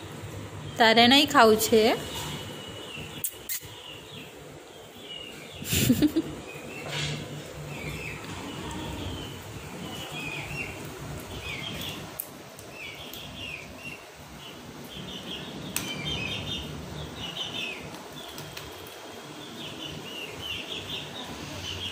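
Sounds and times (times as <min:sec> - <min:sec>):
high-pitched chirping: 0:03.0 - 0:04.3
sharp click: 0:03.2 - 0:03.7.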